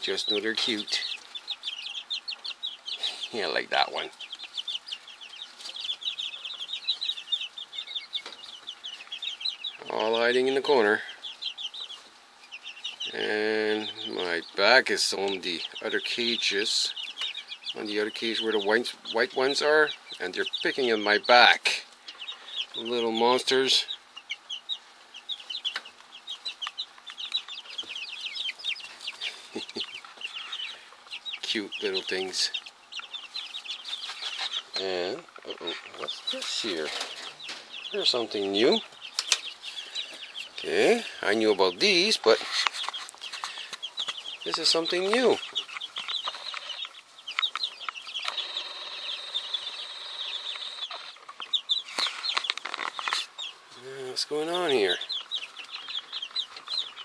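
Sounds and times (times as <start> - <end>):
chicks peeping: 0.0 - 57.0
sharp clicks: 45.8 - 48.5.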